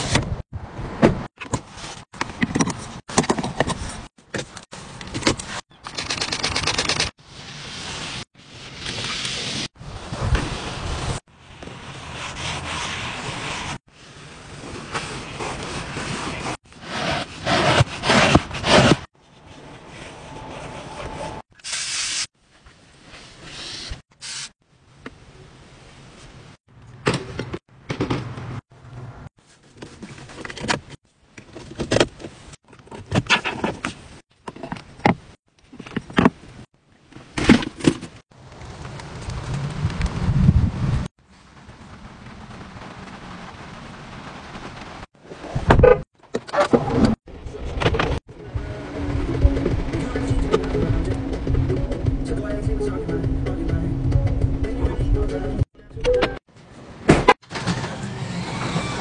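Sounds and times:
cloth wiping and scrubbing: 0:11.8 - 0:13.9, 0:14.6 - 0:22.3.

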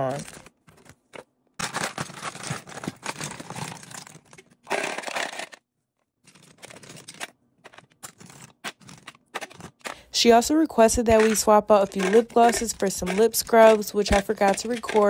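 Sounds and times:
plastic tubes clattering: 0:00.0 - 0:05.6, 0:06.2 - 0:10.2, 0:10.9 - 0:15.0
plastic wrapping crinkling: 0:00.0 - 0:05.6.

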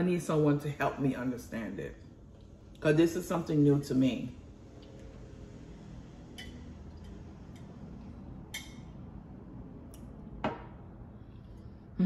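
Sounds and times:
glass and tableware clinking: 0:08.5 - 0:09.0.

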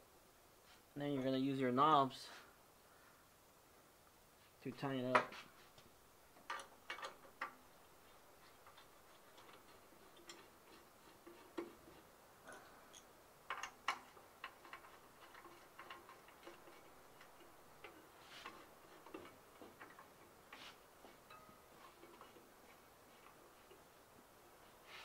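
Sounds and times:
plastic knobs clicking and knocking: 0:06.4 - 0:07.6, 0:13.5 - 0:20.2.

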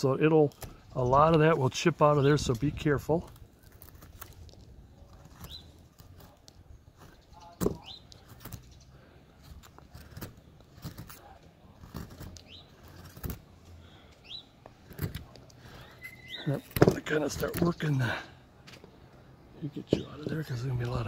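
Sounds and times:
chisel cracking wood: 0:00.5 - 0:01.5, 0:02.6 - 0:15.8, 0:16.5 - 0:17.9
bird chirping: 0:05.1 - 0:06.1, 0:06.8 - 0:09.3, 0:12.3 - 0:13.1, 0:13.8 - 0:14.8, 0:15.6 - 0:18.4, 0:19.5 - 0:21.0.

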